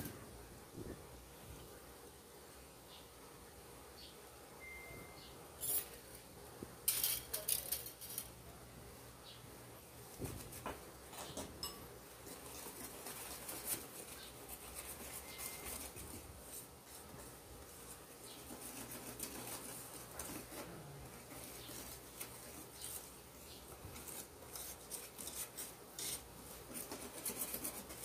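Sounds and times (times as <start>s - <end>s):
whisk scraping metal bowl: 24.0s - 28.0s.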